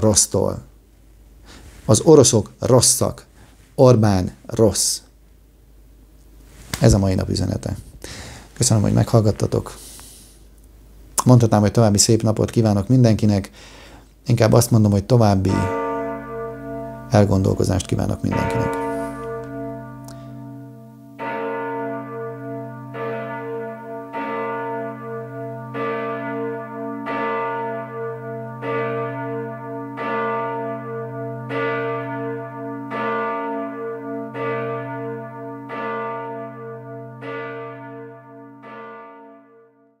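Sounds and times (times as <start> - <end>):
deep steady hum: 15.4 - 23.0
large church bell tolling: 15.4 - 40.0.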